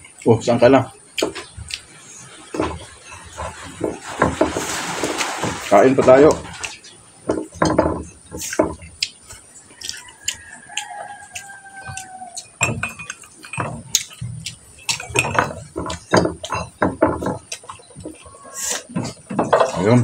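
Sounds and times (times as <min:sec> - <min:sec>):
chewing and mouth sounds: 0:00.0 - 0:04.0, 0:06.4 - 0:19.9.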